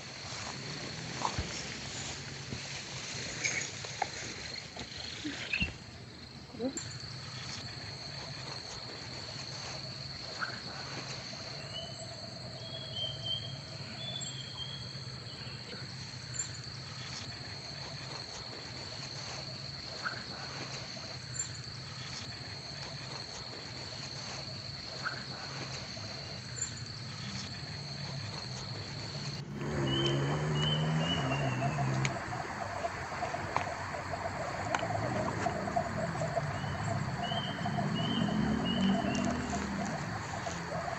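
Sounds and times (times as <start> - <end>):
high-pitched insect trill: 6.5 - 40.9
low pulsing sounds: 29.0 - 40.9.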